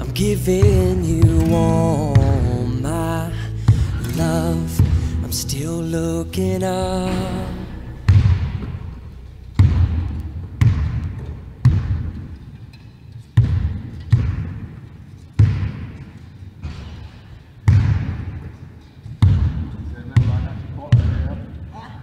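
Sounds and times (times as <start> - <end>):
basketball bouncing on wooden floor: 9.6 - 12.4, 13.4 - 14.8, 19.2 - 21.2.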